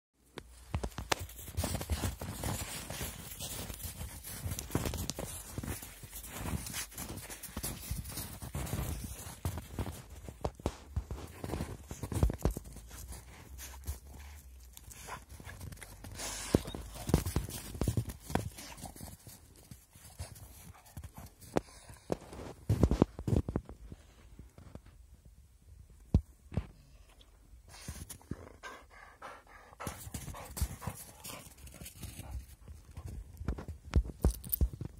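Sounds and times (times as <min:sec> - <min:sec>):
footsteps crunching in snow: 0:00.5 - 0:23.4.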